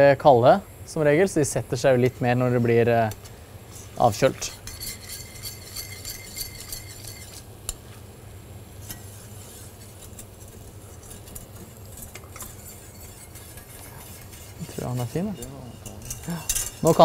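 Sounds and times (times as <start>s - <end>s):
steady low hum: 0.0s - 17.0s
whisk clinking in metal saucepan: 4.4s - 7.8s, 8.8s - 17.0s.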